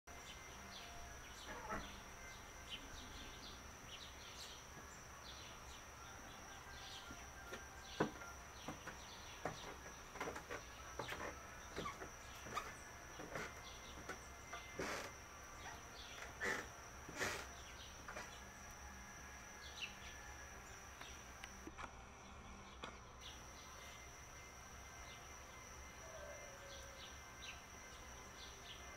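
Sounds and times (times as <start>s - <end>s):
high-pitched whine: 0.1s - 28.9s
sparrows chirping: 0.2s - 18.5s.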